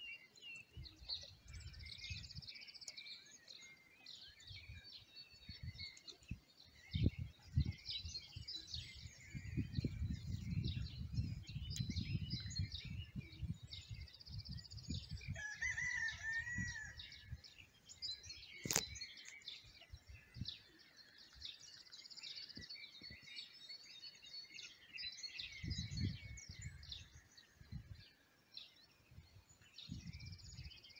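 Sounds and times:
small birds chirping: 0.0 - 30.9
rooster crowing: 15.4 - 17.0
sharp click: 18.6 - 19.0.

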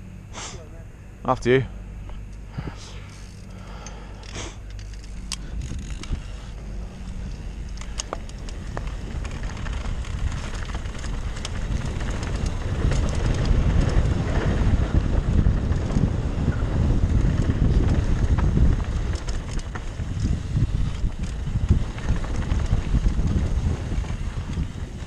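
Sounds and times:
stones and bike clicking and rattling: 2.8 - 25.0
wind buffeting microphone: 5.1 - 25.0
tyres rolling on gravel: 5.6 - 25.0.

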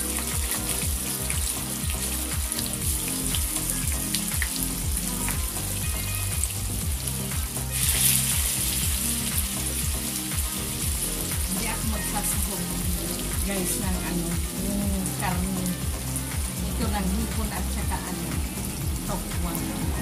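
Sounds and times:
background music with low beat: 0.0 - 20.0
tofu sizzling in hot oil: 0.0 - 20.0.

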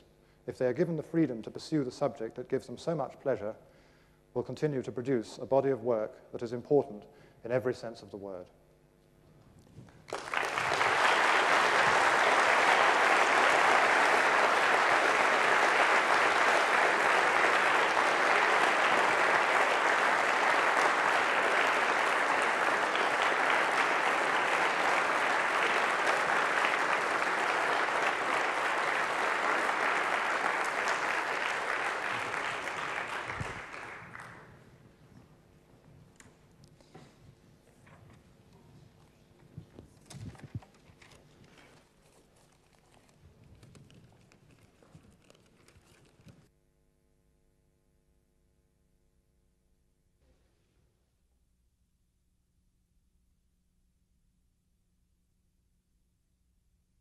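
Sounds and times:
large audience applauding: 10.1 - 34.5.

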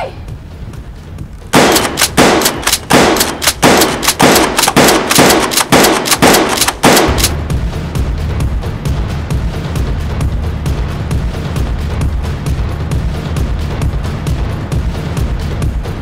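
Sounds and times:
rapid gunshot bangs: 1.5 - 7.4.

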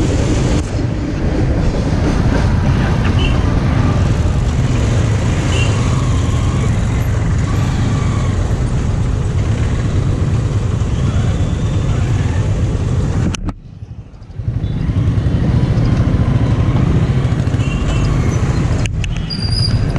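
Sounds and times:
car engines pulling away: 2.8 - 13.3
motorcycle engines idling: 3.4 - 18.9.

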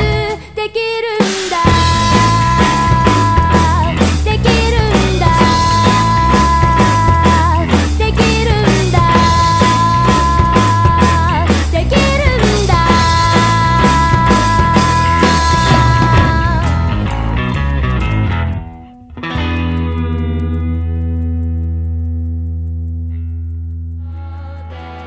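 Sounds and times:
loud rock music: 1.2 - 20.8.

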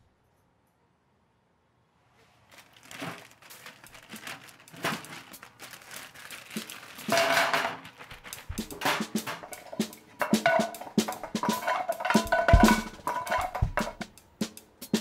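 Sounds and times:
plastic bags crinkling: 2.4 - 14.0.

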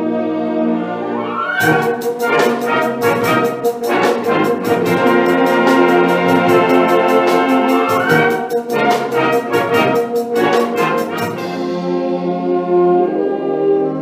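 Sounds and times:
wind band playing: 0.0 - 14.0
sharp percussion beat: 1.6 - 12.1.

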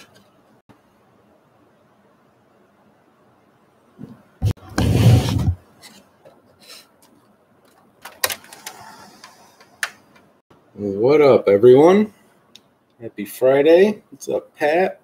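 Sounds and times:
loud scraping rub: 4.4 - 5.6.

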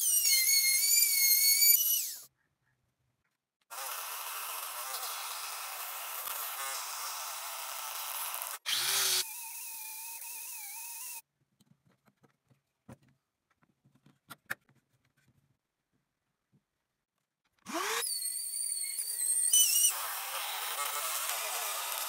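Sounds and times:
scroll saw cutting wood: 0.0 - 2.3, 3.7 - 11.2, 17.6 - 22.0.

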